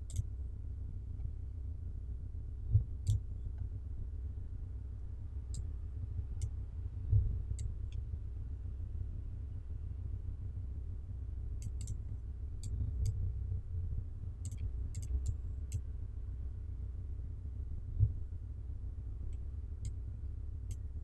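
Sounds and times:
steady low hum: 0.0s - 21.0s
computer mouse clicking: 0.1s - 0.3s, 3.0s - 3.2s, 11.6s - 12.0s, 14.4s - 15.8s
soft low thump: 17.9s - 18.3s.

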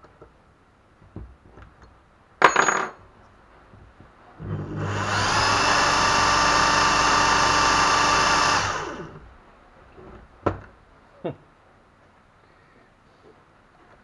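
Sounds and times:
electric drill spinning: 4.4s - 9.2s.

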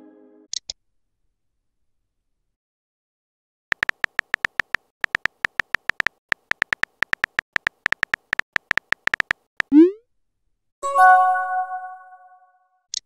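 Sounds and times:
keyboard typing pinging clicks: 3.7s - 9.9s.

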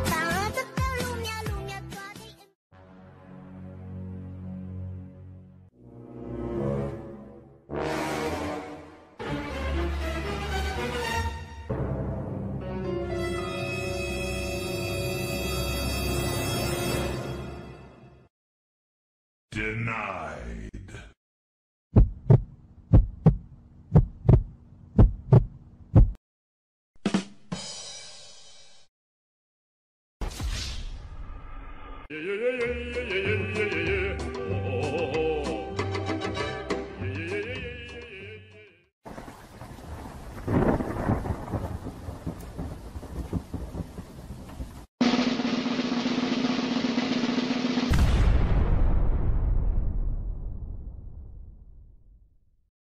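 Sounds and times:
heartbeat thumps: 21.9s - 26.2s.

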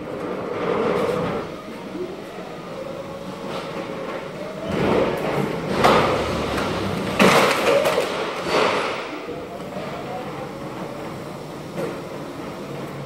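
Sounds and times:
pallet jack rattling roll: 3.5s - 13.0s.

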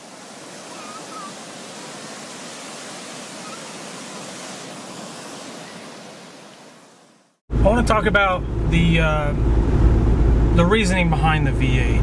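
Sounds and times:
surf washing over sand: 0.0s - 7.4s.

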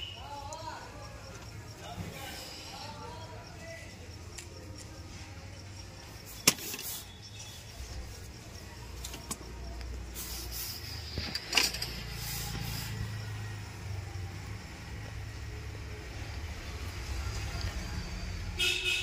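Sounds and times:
small clicks and scrapes: 9.0s - 12.8s.

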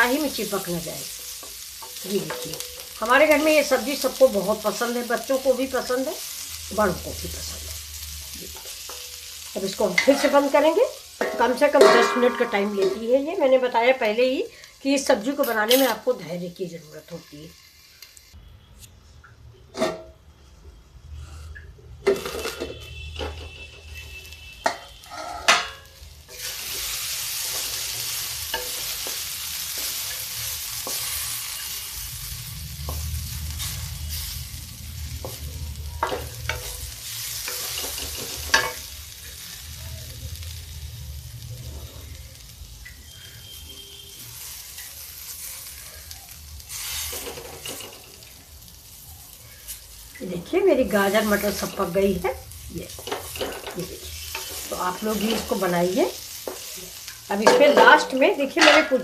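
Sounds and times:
vegetables sizzling in a pan: 0.0s - 18.4s, 22.0s - 59.0s
metal plate knocking on pan: 11.2s - 13.1s, 57.4s - 59.0s.

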